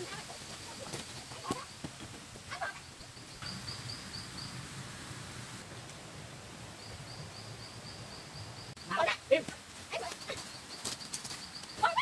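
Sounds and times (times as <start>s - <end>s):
steady forest hiss: 0.0s - 12.0s.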